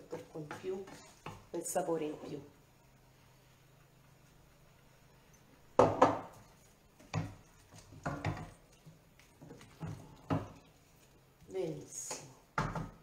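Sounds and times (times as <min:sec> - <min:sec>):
wooden spoon knocking on metal pan: 0:05.8 - 0:06.4, 0:07.0 - 0:08.6.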